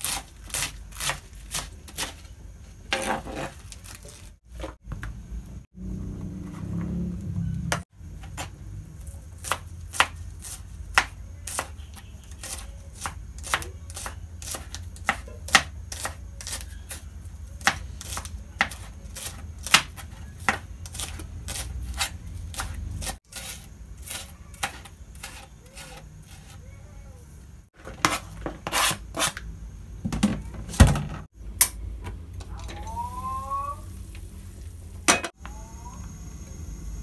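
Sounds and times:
knife chopping on plastic board: 10.9 - 11.7, 12.4 - 16.6, 17.6 - 22.8.

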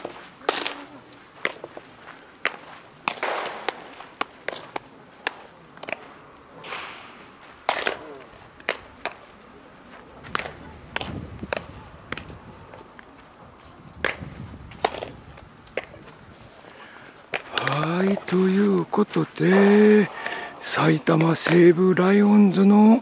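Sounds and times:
baseballs being hit and caught: 0.0 - 13.2, 14.0 - 16.5, 17.1 - 21.7
players calling out: 16.7 - 23.0.

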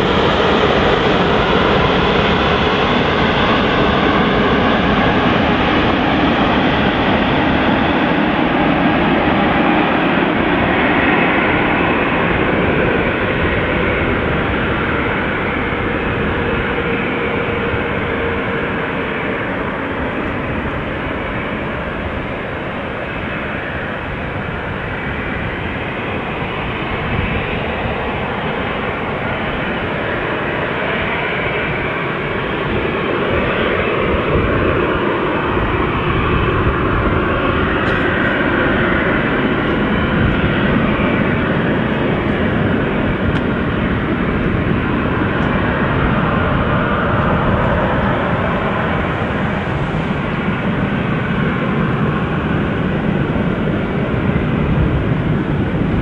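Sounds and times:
jet engines at takeoff: 0.0 - 56.0.

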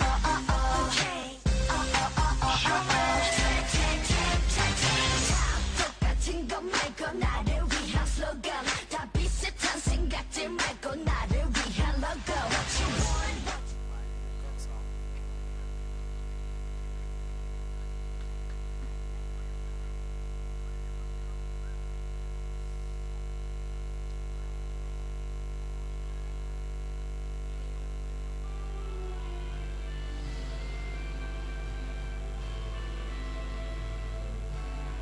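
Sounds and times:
dance music: 0.0 - 14.8, 28.4 - 35.0
electrical mains hum: 11.1 - 35.0.

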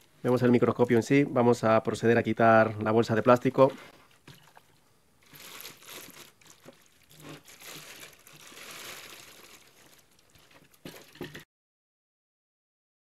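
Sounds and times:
plastic bag crinkling: 4.3 - 11.4.

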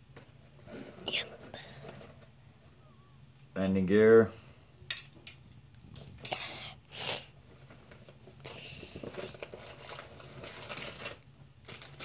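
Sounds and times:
plastic bags crinkling: 7.4 - 12.0.

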